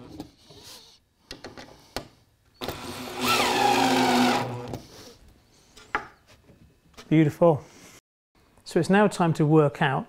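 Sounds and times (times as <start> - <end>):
cordless drill motor whine: 2.6 - 4.7
drill clicking: 2.6 - 4.7.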